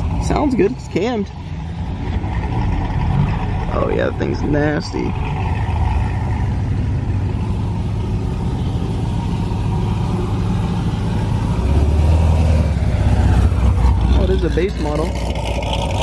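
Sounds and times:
car engine exhaust rumble: 0.0s - 16.0s.

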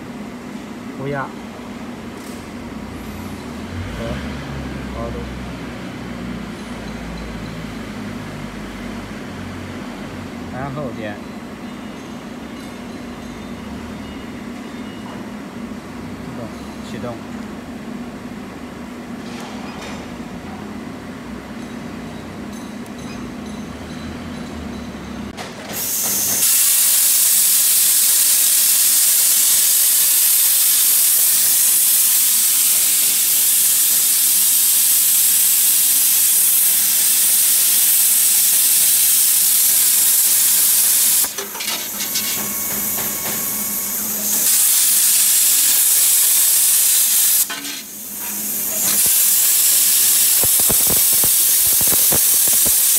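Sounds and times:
plasma arc hissing: 25.7s - 52.9s
machine hum: 48.0s - 52.9s.

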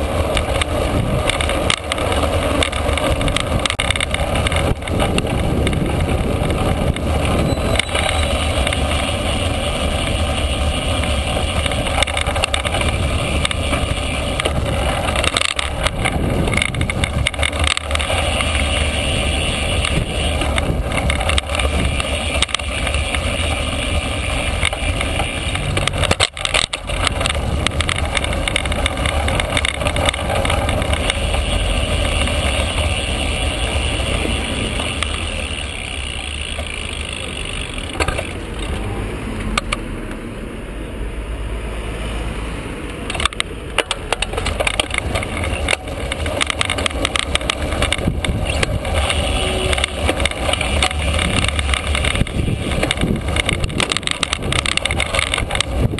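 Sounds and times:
wind on microphone: 0.0s - 9.0s, 10.7s - 33.0s, 44.4s - 55.9s
bicycle tyres on road: 0.0s - 55.9s
camera mount knocks and rattles: 43.1s - 49.1s, 49.7s - 55.9s.

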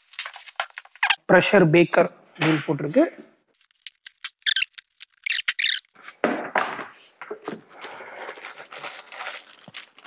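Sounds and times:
plastic wrapping crinkling: 0.0s - 1.0s, 3.5s - 5.7s, 7.9s - 10.0s.

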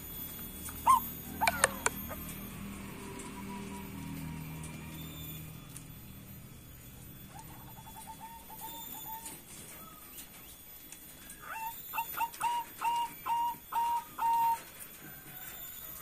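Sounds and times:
dove cooing: 0.7s - 4.8s, 7.2s - 10.5s, 11.2s - 16.0s.

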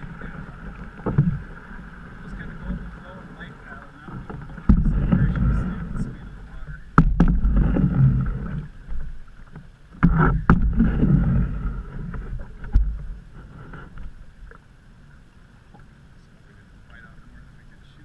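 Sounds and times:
low rumbling: 0.0s - 18.0s
paddle strokes in water: 0.0s - 18.0s
sharp knocks: 7.0s - 8.2s, 10.0s - 11.1s.

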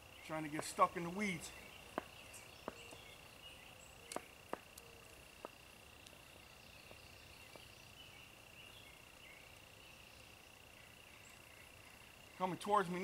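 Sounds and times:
high-pitched insect trill: 0.0s - 13.0s
sharp clicks: 4.1s - 6.2s.

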